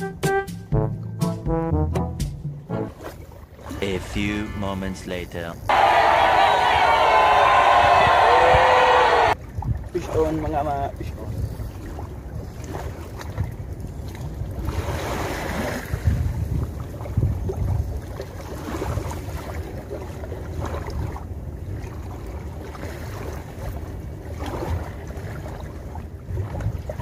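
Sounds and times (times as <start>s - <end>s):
wind buffeting microphone: 5.6s - 27.0s.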